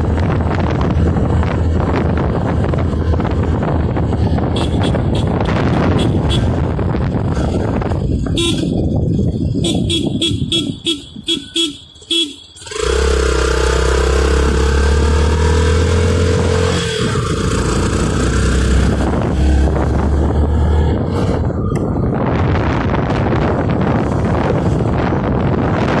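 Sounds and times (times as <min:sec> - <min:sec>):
engine and road noise: 0:00.0 - 0:26.0
vehicle horn short toots: 0:04.5 - 0:06.6, 0:08.3 - 0:08.8, 0:09.6 - 0:13.4
long steady horn note: 0:09.6 - 0:14.0.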